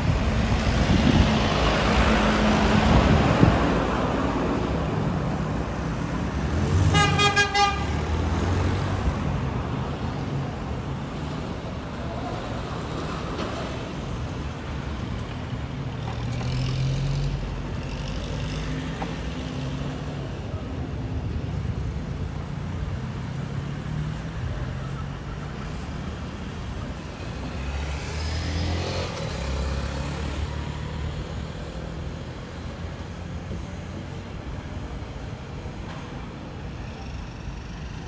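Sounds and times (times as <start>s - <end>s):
road traffic rumble: 0.0s - 38.0s
vehicle speeding up: 27.6s - 31.1s.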